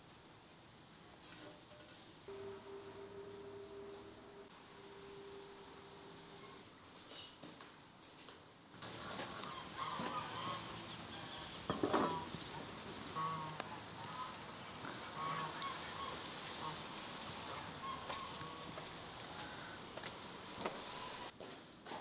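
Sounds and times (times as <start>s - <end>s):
steady background hiss: 8.4s - 21.4s
geese honking: 8.8s - 21.3s.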